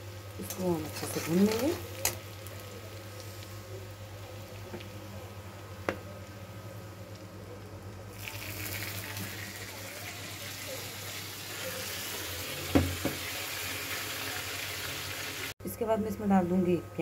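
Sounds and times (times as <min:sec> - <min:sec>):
hot oil sizzling: 0:00.0 - 0:15.6.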